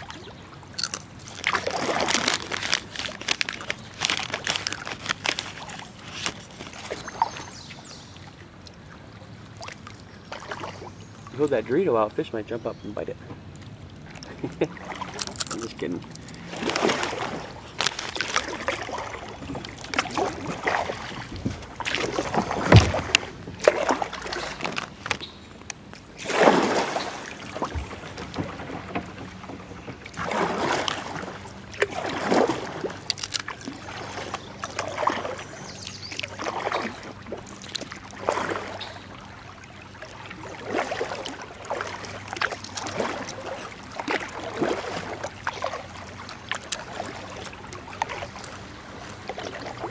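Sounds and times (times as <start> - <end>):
paddle strokes splashing water: 0.0 - 12.3, 13.0 - 49.9.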